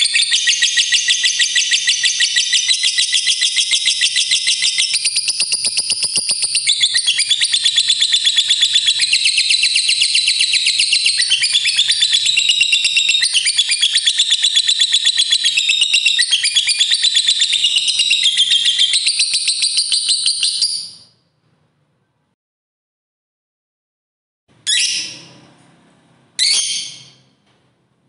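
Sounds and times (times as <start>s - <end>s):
lovebird chattering: 0.0s - 20.9s.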